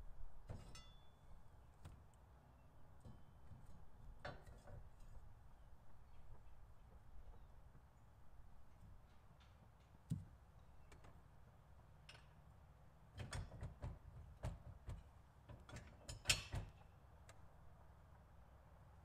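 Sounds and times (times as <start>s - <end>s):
metal clunks and knocks: 0.4s - 1.0s, 3.0s - 5.1s.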